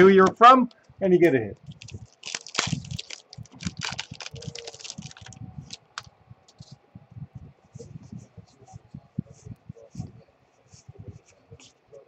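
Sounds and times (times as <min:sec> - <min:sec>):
foil wrapper tearing and crinkling: 0:01.7 - 0:06.1.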